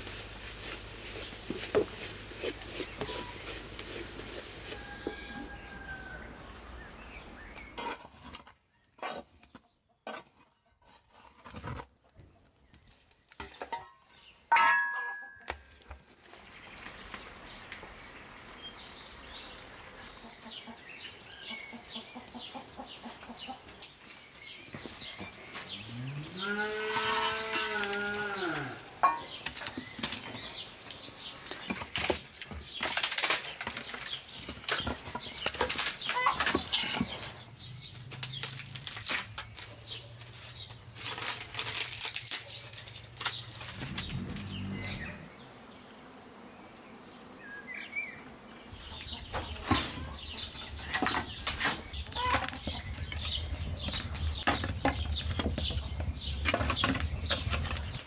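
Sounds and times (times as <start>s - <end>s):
shovel scraping ash: 0.0s - 5.8s, 7.7s - 11.9s, 26.8s - 28.2s, 50.8s - 58.0s
farm animal call: 25.8s - 29.2s, 43.8s - 45.6s, 52.0s - 53.5s
firewood knocking and clattering: 29.0s - 30.4s, 50.7s - 58.0s.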